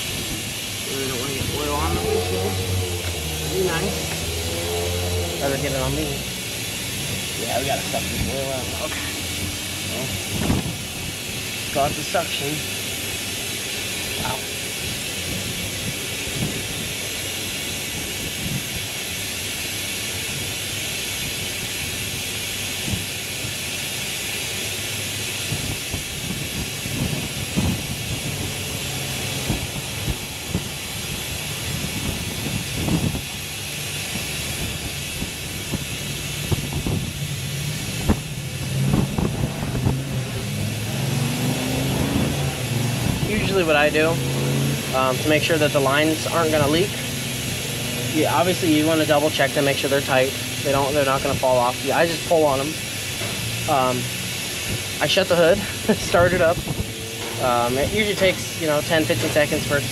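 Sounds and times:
low hum: 0.0s - 11.4s
suction tool hissing: 0.0s - 59.9s.

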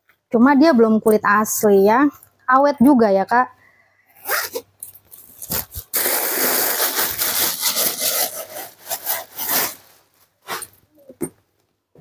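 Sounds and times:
leather bag rubbing and scraping: 5.4s - 10.8s.

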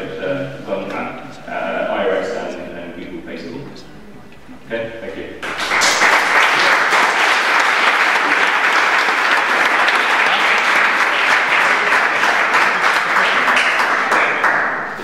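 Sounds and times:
audience applauding: 5.4s - 15.0s.

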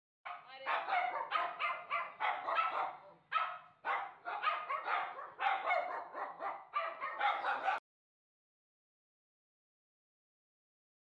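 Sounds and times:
puppies yapping: 0.7s - 7.8s.

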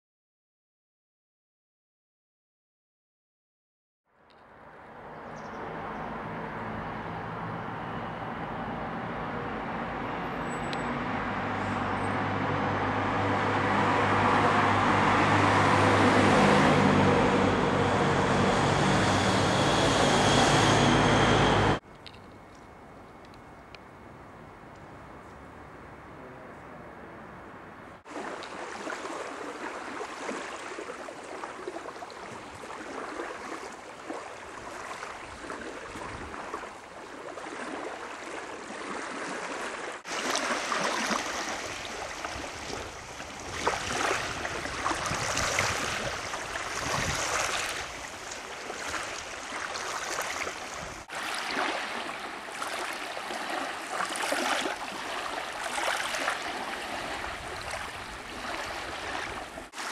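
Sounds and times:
small waves lapping on sand: 28.0s - 59.9s.

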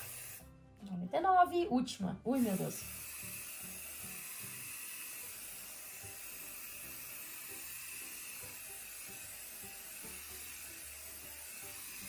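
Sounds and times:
aerosol spray hissing: 0.0s - 0.4s, 2.3s - 12.0s.

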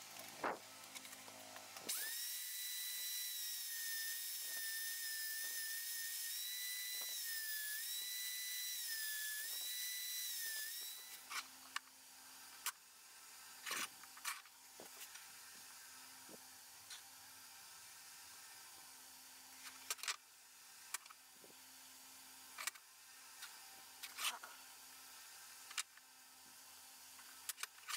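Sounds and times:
belt sander whining: 1.7s - 11.3s.

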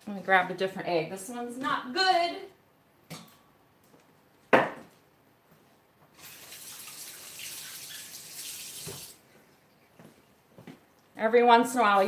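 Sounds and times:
kitchen tap running: 6.2s - 9.2s.

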